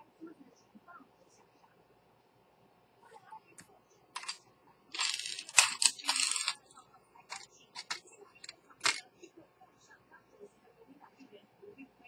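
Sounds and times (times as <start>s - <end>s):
scraping: 5.0s - 6.6s, 7.3s - 8.0s.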